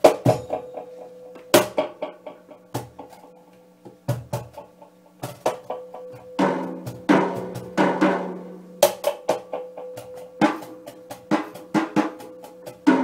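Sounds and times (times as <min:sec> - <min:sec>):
cajon and snare drum strikes: 0:00.0 - 0:00.6, 0:04.0 - 0:04.6, 0:05.2 - 0:05.7, 0:06.4 - 0:13.0.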